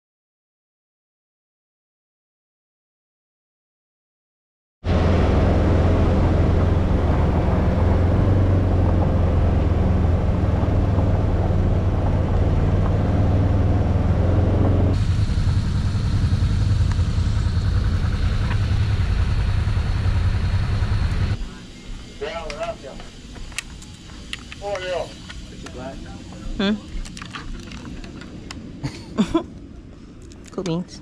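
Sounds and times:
buggy engine droning: 4.8 - 21.6
thin high whine: 14.1 - 29.0.

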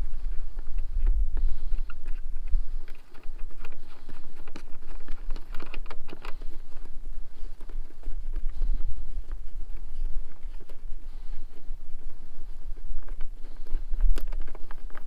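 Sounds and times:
wind buffeting microphone: 0.0 - 15.0
plastic clicks and rattles: 1.8 - 6.9.

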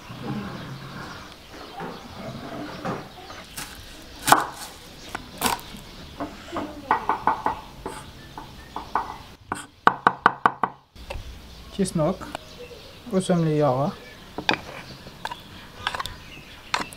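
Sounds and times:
knife chopping on wooden board: 3.6 - 5.7.

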